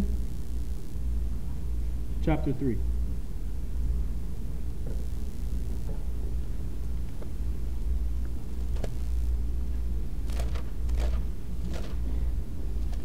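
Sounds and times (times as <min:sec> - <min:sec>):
steady low rumble: 0:00.0 - 0:13.0
pages turning: 0:10.2 - 0:12.1.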